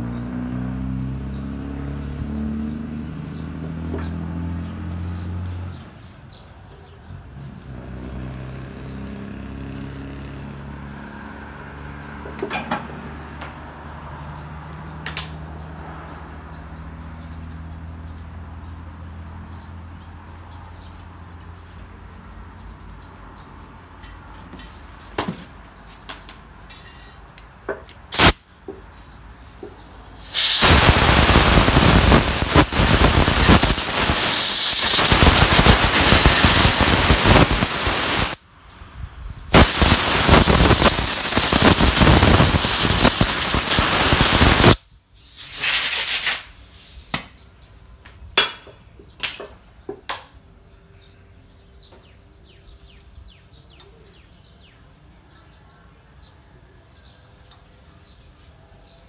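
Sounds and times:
compressed-air blow gun hissing: 0:28.1 - 0:28.4, 0:29.3 - 0:38.4, 0:39.5 - 0:47.2.

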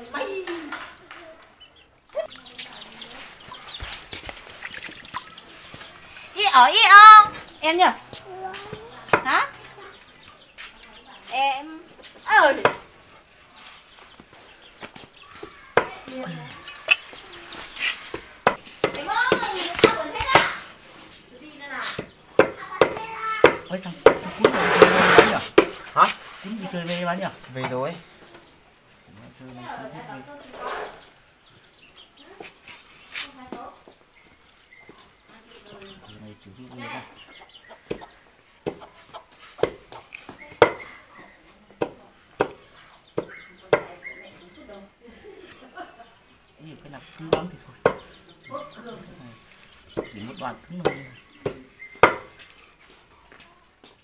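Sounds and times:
knife chopping on wooden board: 0:22.0 - 0:25.8, 0:41.8 - 0:42.6, 0:43.2 - 0:43.9, 0:50.8 - 0:52.3.

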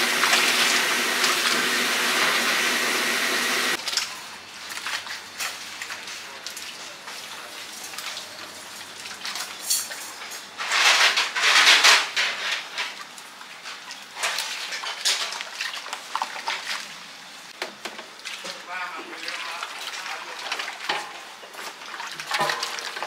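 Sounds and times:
cooking hiss: 0:00.0 - 0:04.5
utensils and dishes clattering: 0:09.3 - 0:13.0, 0:14.2 - 0:15.4, 0:20.4 - 0:23.0.

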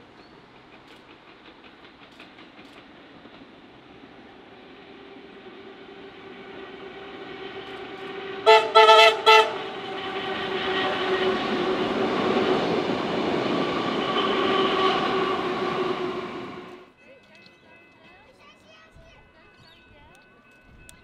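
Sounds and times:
train running on rails: 0:00.0 - 0:21.0
train horn toots: 0:05.1 - 0:16.9.

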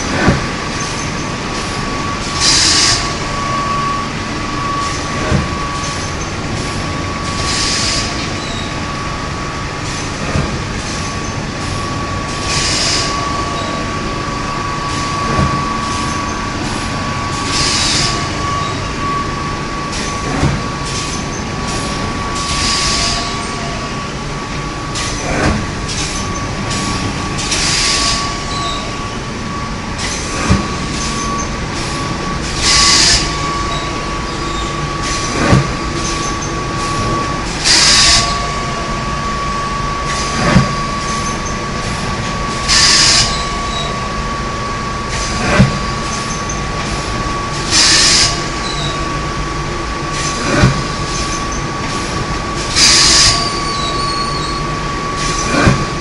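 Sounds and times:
high whine: 0:00.0 - 0:56.0
machine hum: 0:00.0 - 0:56.0
machine hissing bursts: 0:17.4 - 0:18.3, 0:20.9 - 0:23.6, 0:25.9 - 0:29.0, 0:30.0 - 0:38.4, 0:42.6 - 0:43.5, 0:45.1 - 0:48.8, 0:51.9 - 0:54.6.

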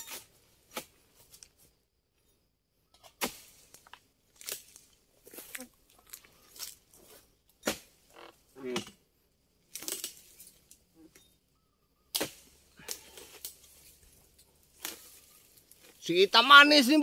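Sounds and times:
blade chopping into palm: 0:12.1 - 0:12.4.

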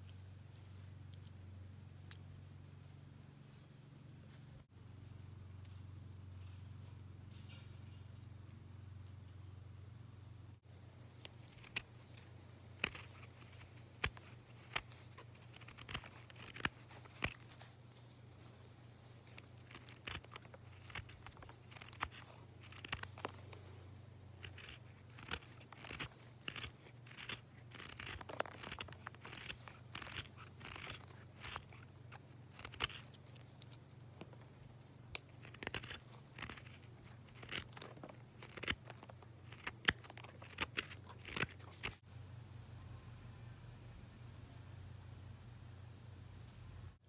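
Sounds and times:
knife shaving wood: 0:10.6 - 0:42.1.

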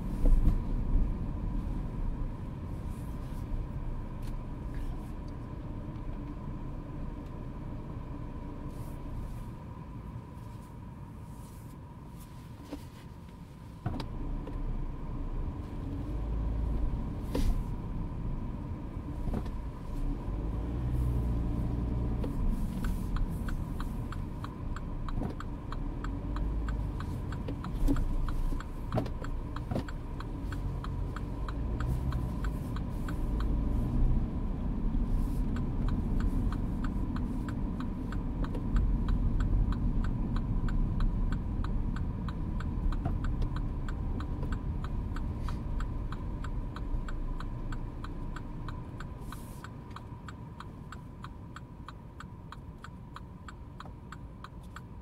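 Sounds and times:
car engine and road rumble: 0:00.0 - 0:55.0
regular ticking: 0:14.3 - 0:55.0.

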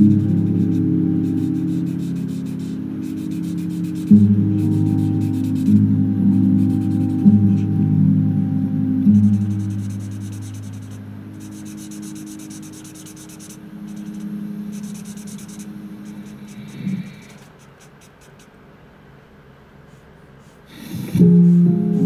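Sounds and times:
marker nib scratching on card: 0:00.0 - 0:04.1, 0:09.2 - 0:18.6, 0:19.9 - 0:21.0
low sustained musical tones: 0:00.0 - 0:17.0, 0:21.2 - 0:22.0.

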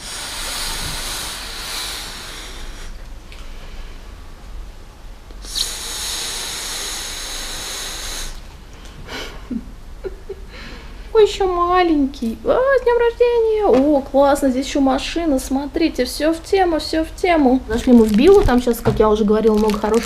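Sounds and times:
breathy blows into balloon: 0:00.0 - 0:03.0, 0:05.4 - 0:08.5.

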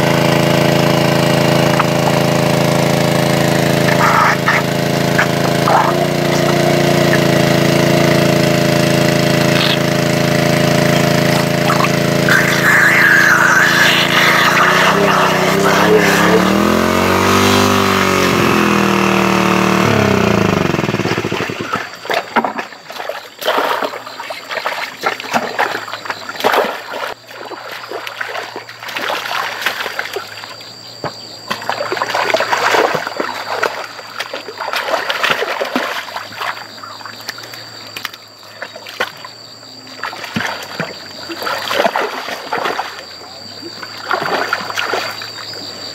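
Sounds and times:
engine water pump running: 0:00.0 - 0:22.2
water splashing and trickling: 0:21.2 - 0:30.8, 0:31.4 - 0:45.7.

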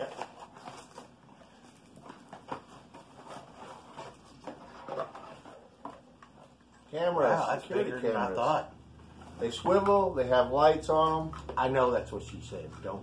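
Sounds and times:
packaging rustling and clicking: 0:00.0 - 0:06.5.

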